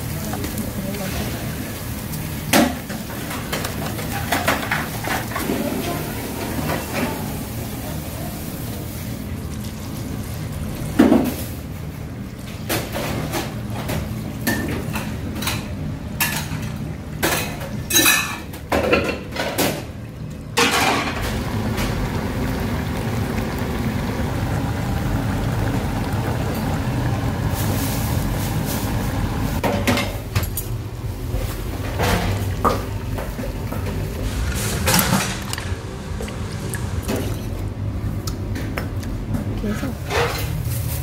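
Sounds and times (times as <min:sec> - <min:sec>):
pan boiling on gas burner: 0:00.0 - 0:38.5
metal pans and utensils clattering: 0:02.4 - 0:07.5, 0:12.5 - 0:20.0, 0:20.6 - 0:21.4, 0:29.6 - 0:30.8, 0:31.4 - 0:35.8, 0:39.6 - 0:41.0.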